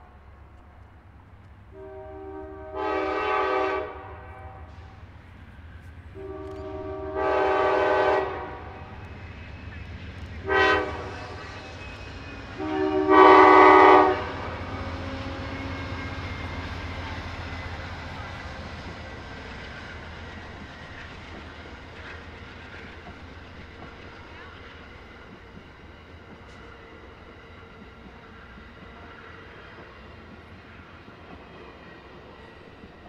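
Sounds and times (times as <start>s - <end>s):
train rumbling over rails: 0.0s - 33.0s
diesel locomotive horn blasts: 1.7s - 5.0s, 6.1s - 9.0s, 10.4s - 11.8s, 12.5s - 17.2s.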